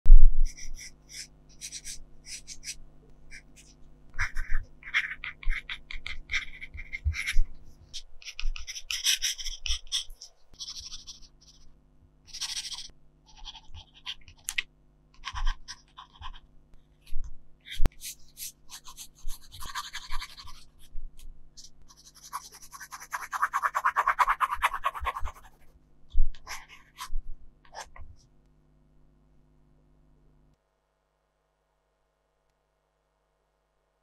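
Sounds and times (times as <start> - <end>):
pencil scratching on paper: 0.4 - 11.7, 12.3 - 14.6, 15.2 - 21.0, 21.6 - 25.8, 26.4 - 28.2.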